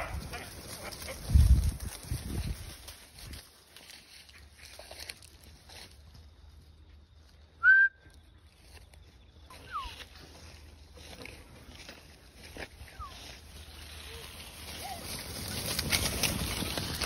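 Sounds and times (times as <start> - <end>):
person whistling: 7.6 - 8.1.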